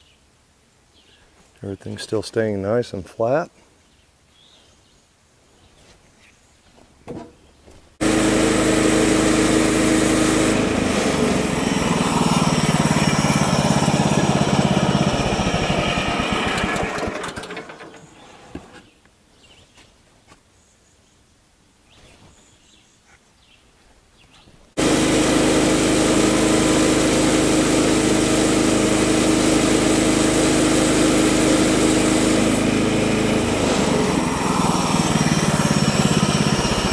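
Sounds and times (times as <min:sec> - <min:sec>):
bandsaw mill engine sawing wood: 0:08.0 - 0:18.8, 0:24.8 - 0:36.9.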